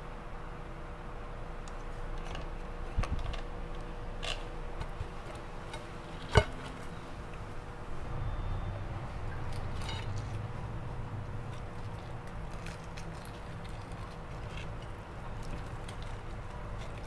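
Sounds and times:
faint steady hum: 0.0 - 17.0
fried chicken crust crackling: 10.1 - 17.0.

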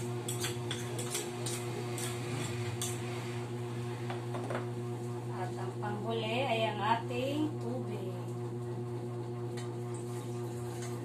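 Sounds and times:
spoon clinking against bowl and pot: 0.3 - 2.2.

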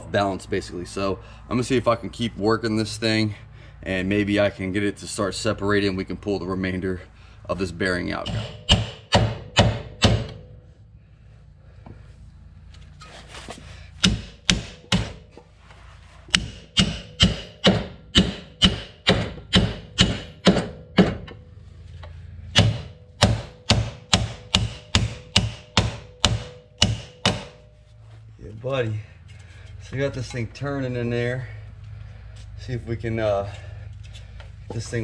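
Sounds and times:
hammer blows on metal hub: 7.9 - 10.8, 16.3 - 31.4.

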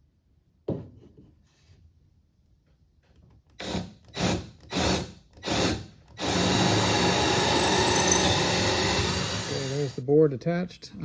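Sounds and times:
cordless drill drilling plywood: 3.6 - 10.0.

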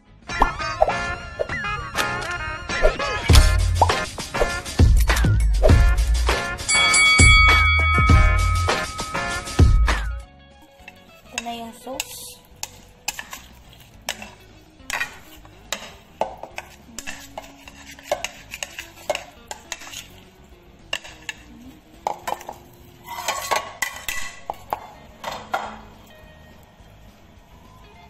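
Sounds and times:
spoon scraping plastic bowl: 12.6 - 20.2, 22.2 - 24.2.

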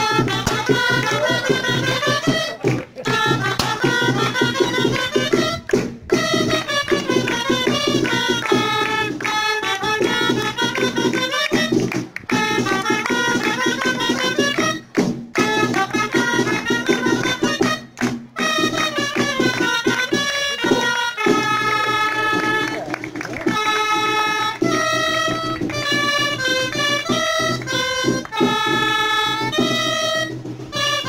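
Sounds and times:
steady drum beat: 0.0 - 31.0.

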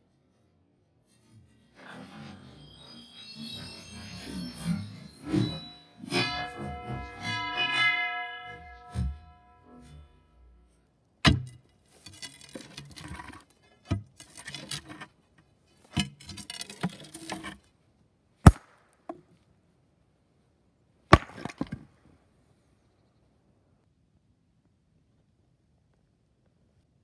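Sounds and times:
guitar music: 5.1 - 10.6
sledgehammer striking steel wedges: 5.3 - 10.4, 18.4 - 18.8, 21.1 - 21.8
steel wedges jangling and scraping: 11.7 - 15.0, 21.2 - 21.8.

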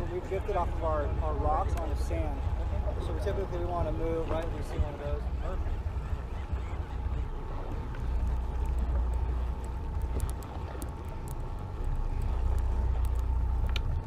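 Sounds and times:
boat engine idling: 0.0 - 14.0
faint steady hum: 0.0 - 14.0
wind on microphone: 0.0 - 14.0
light ticks: 1.7 - 2.2, 7.7 - 14.0.

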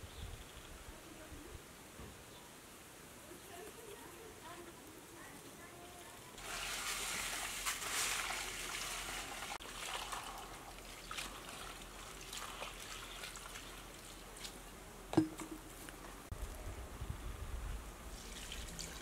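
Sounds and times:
water trickling onto rice: 5.7 - 14.8, 18.1 - 19.0.

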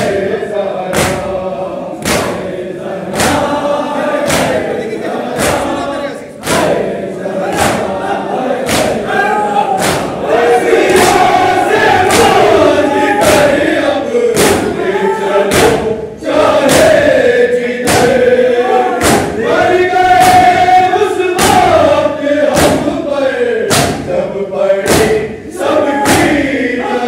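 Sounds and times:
crowd of men chanting: 0.0 - 27.0
chest-beating slaps: 0.9 - 1.4, 2.0 - 2.5, 3.1 - 5.8, 6.4 - 8.0, 8.6 - 9.1, 9.7 - 14.8, 15.4 - 17.2, 17.8 - 18.3, 19.0 - 20.6, 21.3 - 23.0, 23.7 - 24.2, 24.8 - 25.4, 26.0 - 26.6.

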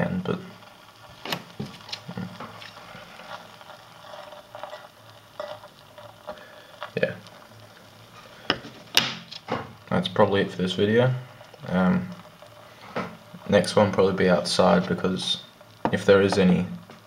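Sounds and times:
soft fizzing bubbles: 0.0 - 17.0
small pops and clicks: 0.6 - 7.9.

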